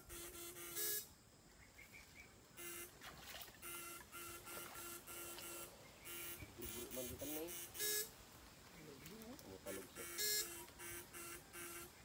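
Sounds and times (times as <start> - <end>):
electronic pulsed buzzing: 0.0 - 1.2, 2.4 - 8.3, 9.6 - 12.0.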